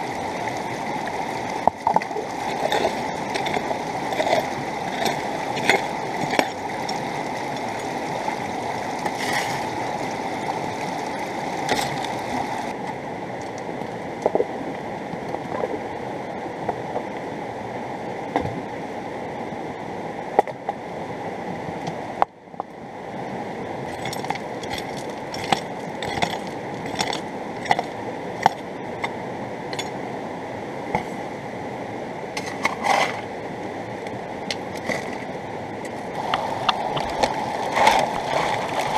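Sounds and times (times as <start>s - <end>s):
river rushing: 0.0s - 14.2s, 22.8s - 38.9s.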